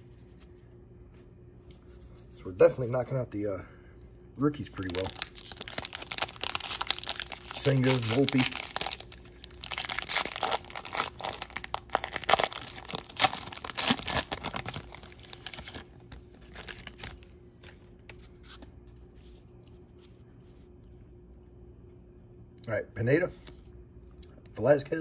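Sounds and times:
wrapper tearing and crinkling: 0:04.7 - 0:17.3.

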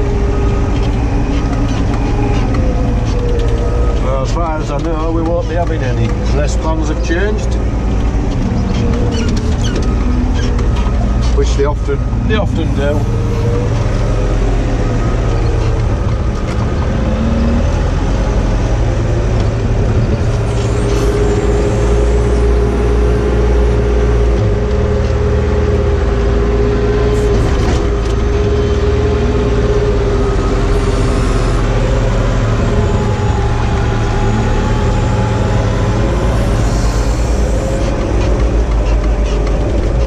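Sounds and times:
diesel engine running: 0:00.0 - 0:40.0
mid-pitched whine: 0:30.2 - 0:38.7.

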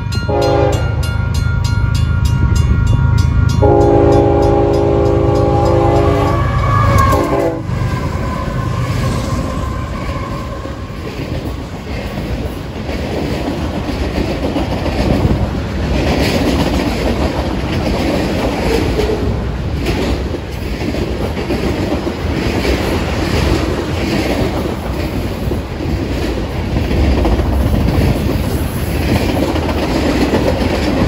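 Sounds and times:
freight cars wheels on rails: 0:00.0 - 0:31.0
locomotive air horn blasts: 0:00.3 - 0:01.0, 0:03.6 - 0:10.8
wheels clicking over rail joints: 0:10.0 - 0:31.0.

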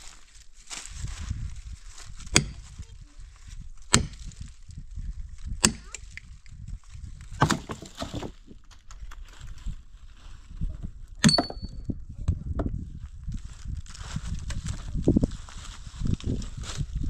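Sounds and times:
axe chopping wood: 0:02.3 - 0:02.7, 0:03.9 - 0:04.4, 0:05.6 - 0:06.1, 0:07.4 - 0:08.4.

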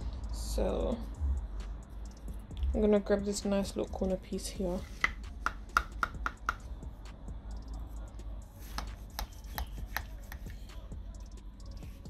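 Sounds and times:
spatula tapping ceramic dish: 0:05.0 - 0:06.6.

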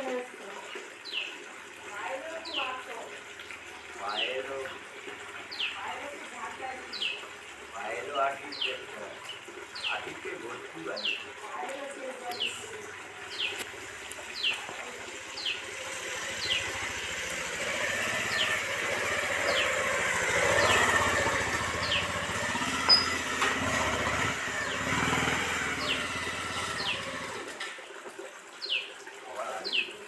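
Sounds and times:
bird chirping: 0:06.9 - 0:07.2, 0:13.3 - 0:13.6, 0:19.4 - 0:21.0, 0:21.8 - 0:22.2, 0:22.9 - 0:23.2
motorcycle engine passing: 0:12.8 - 0:27.7.

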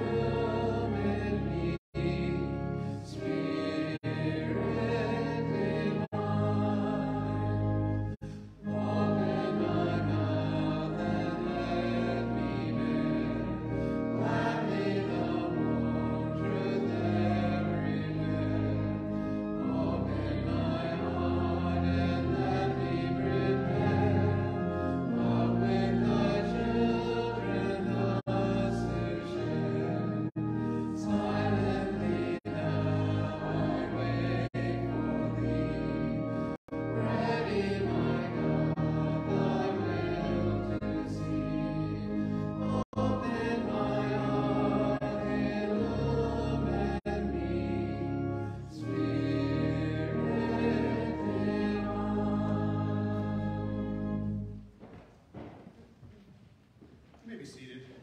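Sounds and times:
congregation singing a hymn: 0:00.0 - 0:54.6
organ chords: 0:00.0 - 0:55.5.

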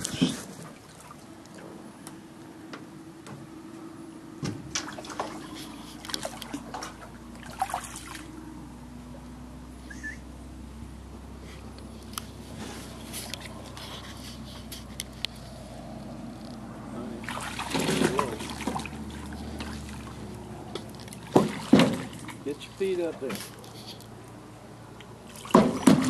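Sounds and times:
water sloshing against boat hull: 0:00.0 - 0:02.1, 0:04.4 - 0:08.6, 0:17.0 - 0:24.1, 0:25.0 - 0:26.0.

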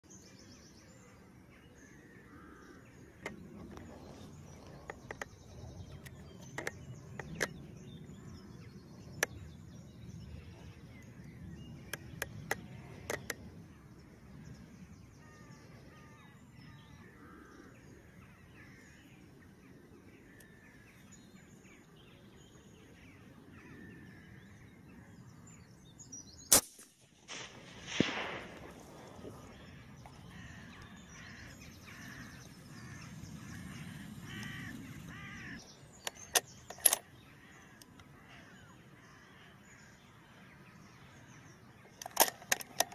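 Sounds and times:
faint birdsong: 0:00.0 - 0:42.9
sharp clicks: 0:11.8 - 0:13.5, 0:35.5 - 0:37.1, 0:41.9 - 0:42.9
rifle shot: 0:26.5 - 0:29.4.

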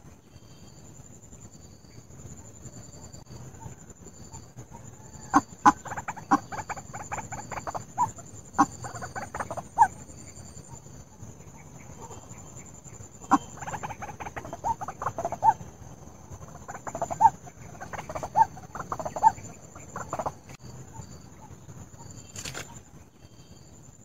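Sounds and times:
faint high-pitched whine: 0:00.0 - 0:24.0
bird clucking calls: 0:04.6 - 0:10.0, 0:11.5 - 0:22.8.

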